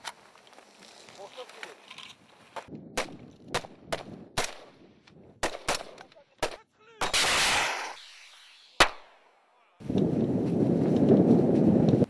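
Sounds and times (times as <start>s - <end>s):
gunshots: 2.9s - 4.8s, 5.4s - 9.2s
loud blast: 7.0s - 9.1s.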